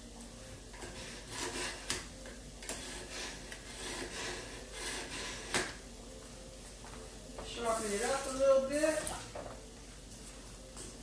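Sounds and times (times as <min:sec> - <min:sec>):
knife rasping through sharpener: 0:00.8 - 0:02.0, 0:02.7 - 0:05.7.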